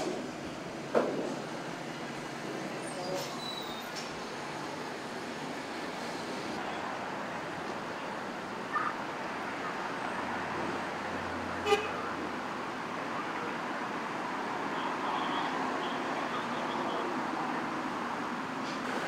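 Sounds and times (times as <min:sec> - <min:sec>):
street traffic noise: 0:00.0 - 0:19.0.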